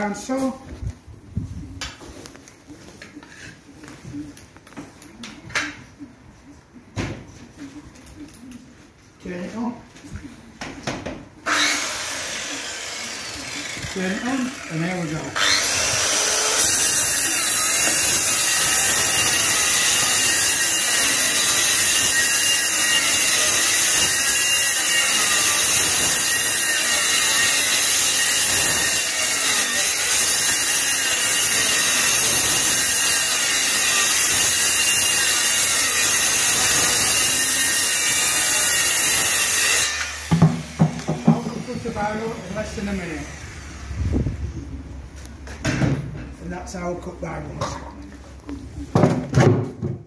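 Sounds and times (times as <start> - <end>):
circular saw cutting wood: 11.4 - 44.2.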